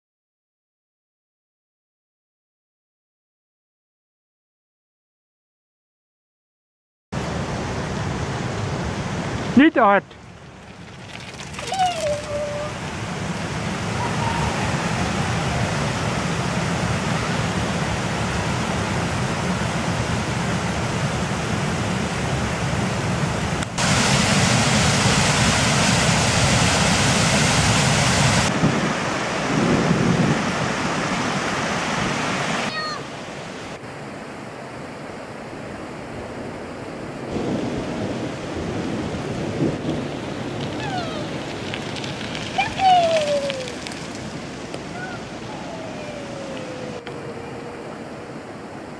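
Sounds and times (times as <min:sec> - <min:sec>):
waterfall pouring into stream: 0:10.5 - 0:12.7.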